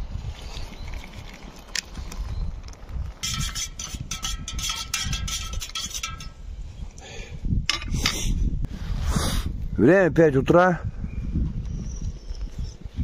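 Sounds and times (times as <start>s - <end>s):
teaspoon clinking in metal mug: 3.2s - 6.4s.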